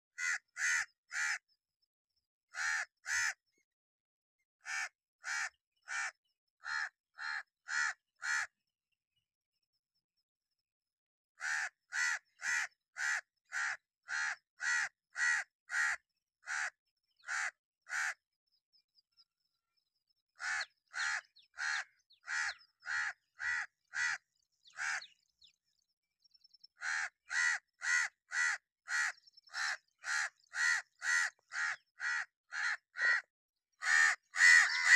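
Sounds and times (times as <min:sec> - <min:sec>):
crow cawing: 0:00.1 - 0:01.4, 0:02.5 - 0:03.4, 0:04.6 - 0:08.6, 0:11.4 - 0:18.2, 0:20.4 - 0:25.1, 0:26.8 - 0:34.9.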